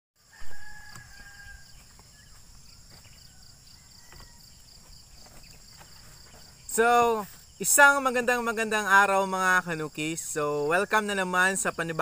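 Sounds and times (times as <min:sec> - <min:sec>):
rooster crowing: 0:00.2 - 0:04.8
insects buzzing: 0:00.2 - 0:12.0.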